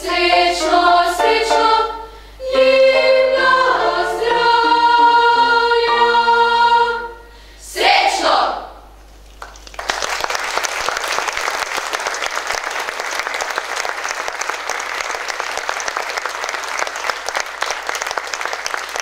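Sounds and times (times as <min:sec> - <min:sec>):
audience applauding: 0:09.3 - 0:19.0.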